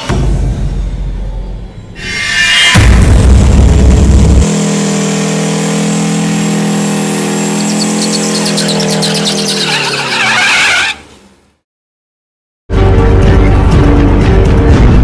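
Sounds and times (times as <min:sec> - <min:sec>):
deep low rumble: 0:02.0 - 0:04.5
diesel truck engine revving: 0:03.1 - 0:11.2.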